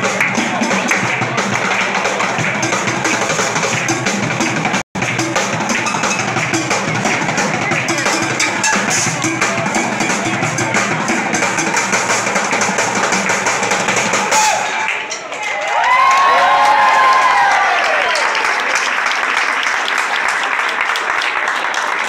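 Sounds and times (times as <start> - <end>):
drumming on buckets and tins: 0.0 - 15.3.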